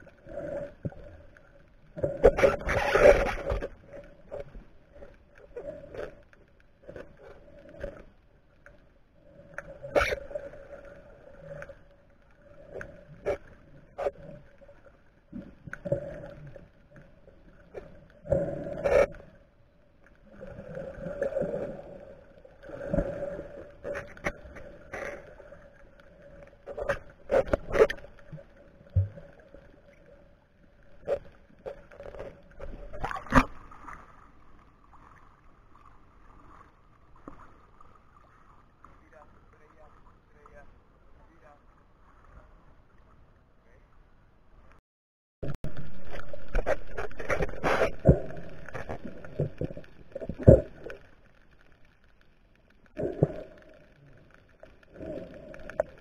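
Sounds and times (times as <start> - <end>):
muffled underwater water surging: 0.0 - 44.8, 45.4 - 56.0.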